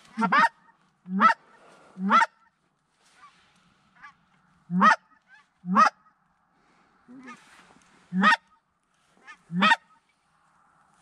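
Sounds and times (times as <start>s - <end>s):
goose call honks: 0.1s - 1.4s, 2.0s - 2.5s, 4.0s - 6.1s, 8.1s - 8.5s, 9.2s - 10.0s.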